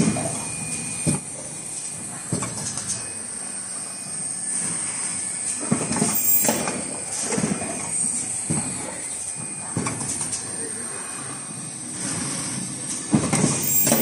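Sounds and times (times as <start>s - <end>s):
high-pitched machine whine: 0.0s - 14.0s
machine clacking and knocking: 13.1s - 14.0s.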